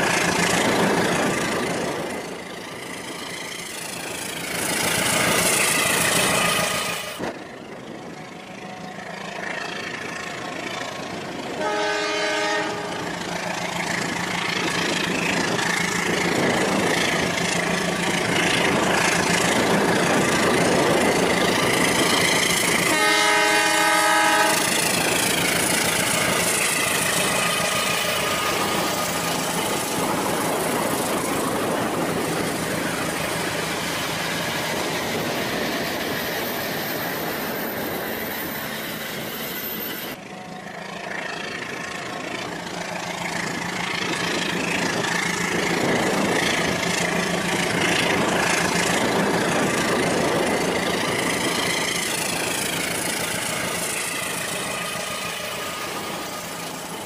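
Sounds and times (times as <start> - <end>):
electronic train horn: 11.5 - 13.1, 22.8 - 25.3.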